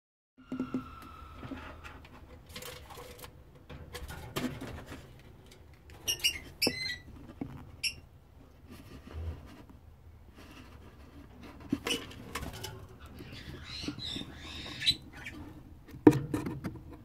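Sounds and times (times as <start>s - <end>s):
bird squeaky chirps: 6.1s - 7.1s, 13.1s - 15.4s.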